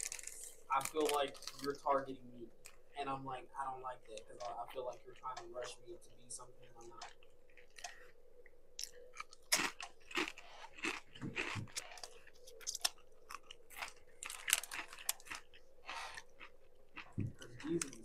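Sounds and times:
chewing crunchy chips: 0:00.0 - 0:02.8, 0:06.7 - 0:08.1, 0:08.8 - 0:18.0.

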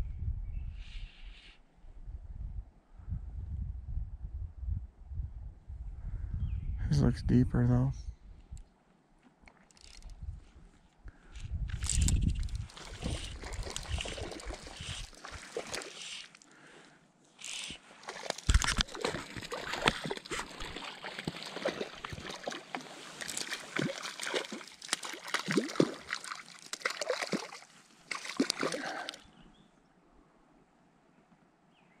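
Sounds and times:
wind rumble on microphone: 0:00.0 - 0:08.7, 0:10.0 - 0:15.2
water splashing and sloshing: 0:11.8 - 0:16.5, 0:17.4 - 0:29.2.

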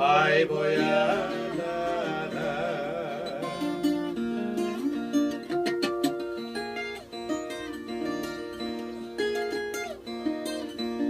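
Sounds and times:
man singing with vibrato: 0:00.0 - 0:04.6
plucked guitar melody: 0:00.0 - 0:11.0.

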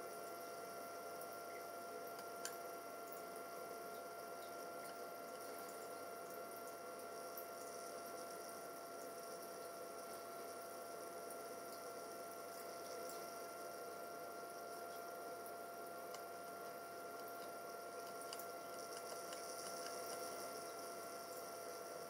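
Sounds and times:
equipment humming: 0:11.7 - 0:22.0
faint ticks: 0:17.1 - 0:20.8.

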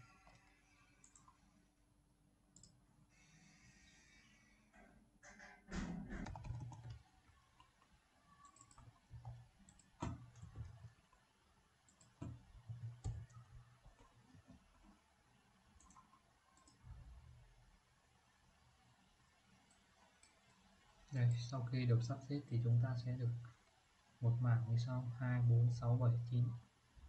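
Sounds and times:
keyboard typing: 0:00.0 - 0:01.4, 0:06.1 - 0:11.3, 0:11.9 - 0:15.0, 0:15.8 - 0:16.9
mouse clicks: 0:08.4 - 0:10.8.

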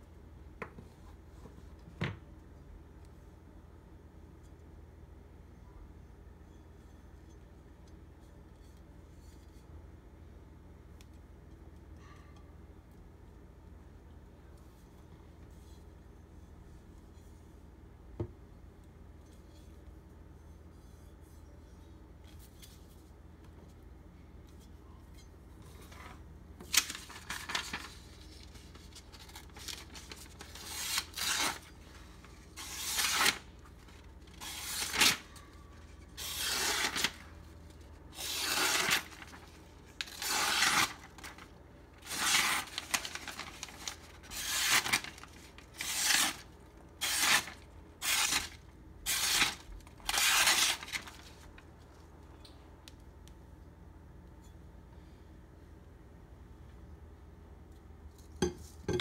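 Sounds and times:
cleaver slicing paper: 0:26.7 - 0:31.8, 0:32.5 - 0:35.5, 0:36.1 - 0:37.4, 0:38.1 - 0:51.4.

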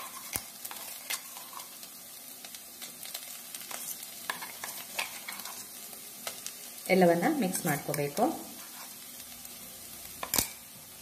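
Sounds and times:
onions sizzling in oil: 0:00.0 - 0:11.0
sharp pops in frying pan: 0:10.2 - 0:10.6.

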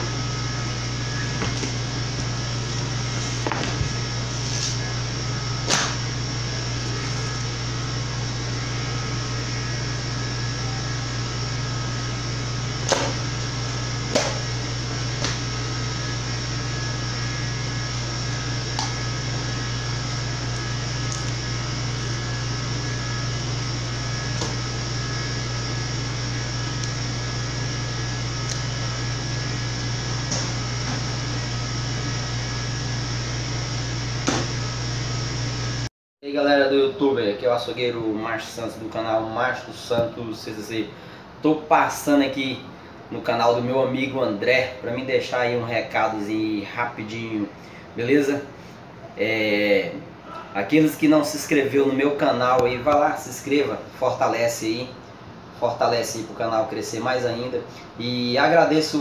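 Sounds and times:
machinery humming: 0:00.0 - 0:35.9.

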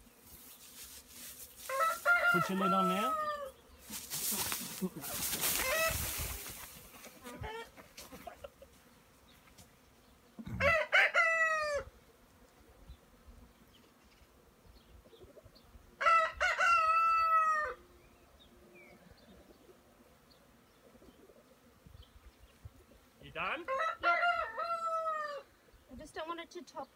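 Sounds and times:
rooster crowing: 0:01.7 - 0:03.6, 0:10.6 - 0:11.9, 0:16.0 - 0:17.8, 0:23.6 - 0:25.5.

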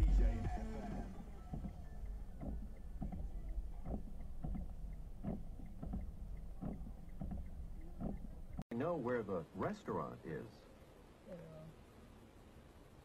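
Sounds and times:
low engine hum: 0:00.0 - 0:08.6.

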